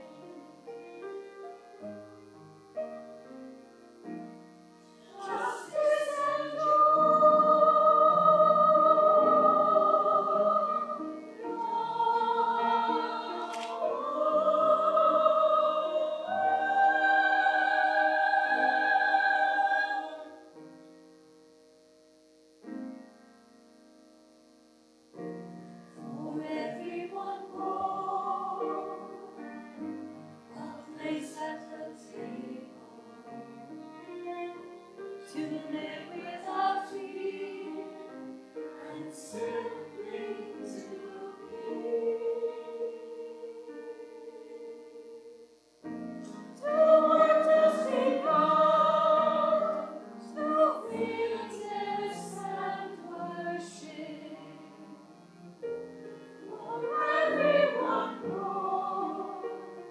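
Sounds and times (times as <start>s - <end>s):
piano accompaniment: 0.0s - 59.9s
person singing classical style: 5.0s - 20.6s, 26.0s - 45.6s, 46.3s - 55.4s, 56.3s - 59.9s.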